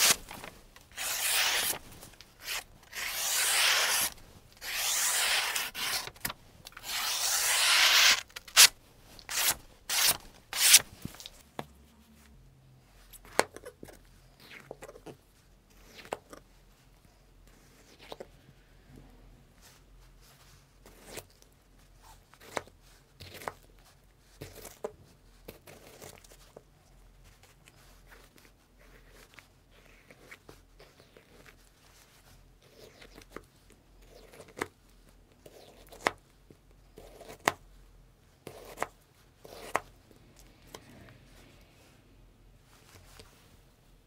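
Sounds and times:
tearing and crinkling: 0.0 - 11.4.

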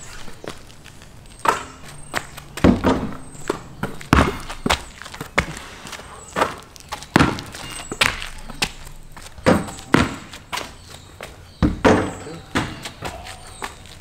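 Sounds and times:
basketball bouncing on concrete: 1.4 - 14.0
ball striking rim and backboard: 2.6 - 4.7, 6.4 - 8.6, 9.4 - 10.6, 11.6 - 13.2.

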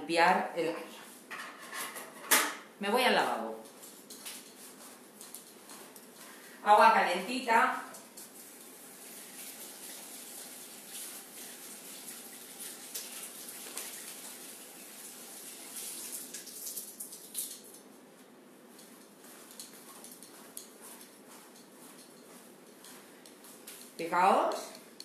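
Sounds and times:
water running from tap: 7.9 - 17.8.

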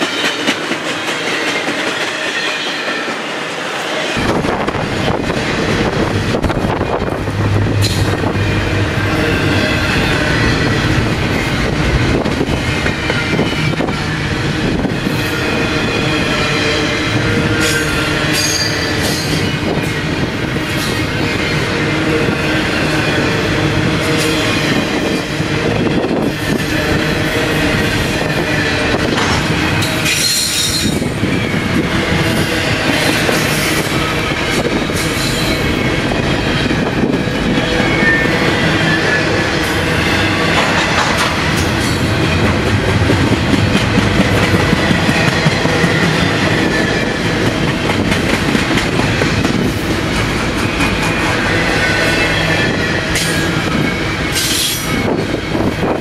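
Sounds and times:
train wheels rumbling on rails: 0.0 - 56.0
high wheel squeal: 6.5 - 11.8, 15.1 - 19.8, 20.8 - 40.6.

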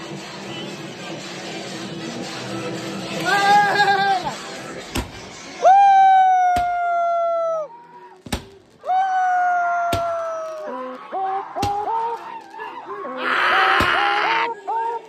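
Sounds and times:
firework whistles: 5.6 - 15.0
fireworks bursting bangs: 8.1 - 12.8.

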